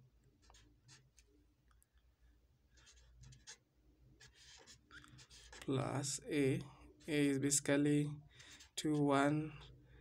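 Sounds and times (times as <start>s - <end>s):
marker scratching on paper: 0.2s - 6.3s, 8.3s - 9.8s.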